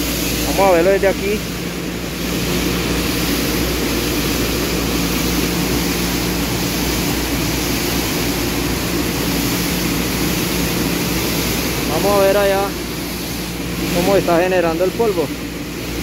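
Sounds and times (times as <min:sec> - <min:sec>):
conveyor machinery humming: 0:00.0 - 0:16.0.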